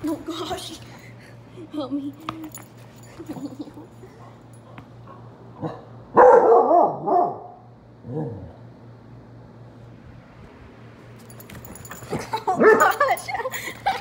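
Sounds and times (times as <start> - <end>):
dog barking: 4.7 - 8.3.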